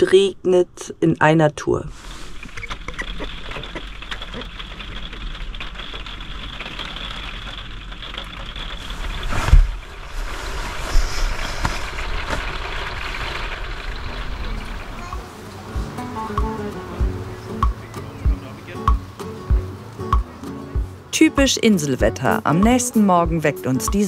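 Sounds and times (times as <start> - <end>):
steady rain falling: 2.6 - 20.8
brief loud rush: 8.8 - 13.3.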